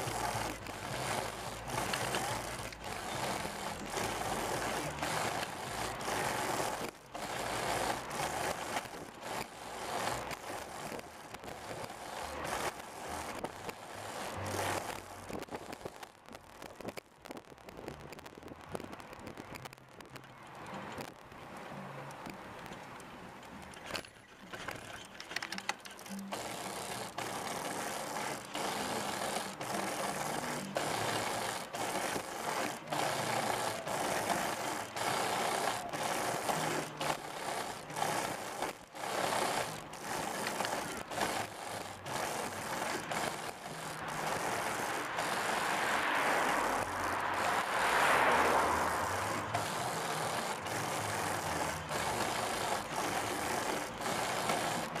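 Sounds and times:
tyres rushing on road: 0:00.0 - 0:17.0, 0:17.9 - 0:55.0
hand-lever drive clicking: 0:23.6 - 0:48.1.

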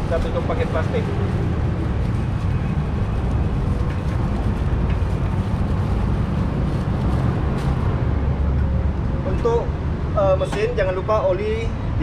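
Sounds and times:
plastic bag rustling: 0:00.0 - 0:08.3.

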